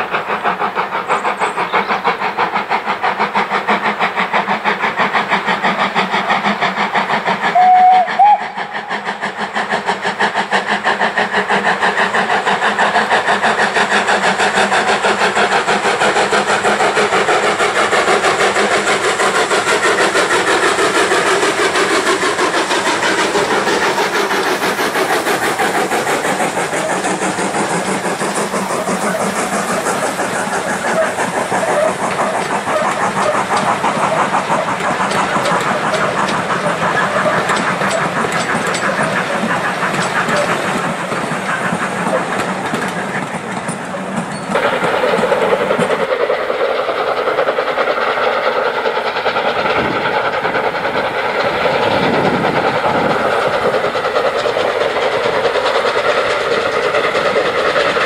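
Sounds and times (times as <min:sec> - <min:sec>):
approaching steam train: 0:00.0 - 0:58.0
steam locomotive exhaust beats: 0:00.0 - 0:58.0
coaches clattering on rails: 0:09.6 - 0:46.5, 0:48.1 - 0:58.0.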